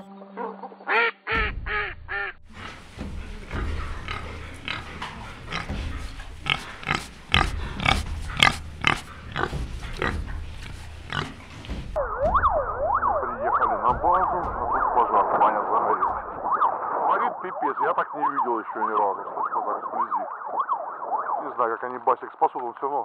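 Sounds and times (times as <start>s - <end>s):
low rumble: 1.4s - 17.4s
wild boar grunting and squealing: 2.4s - 12.0s.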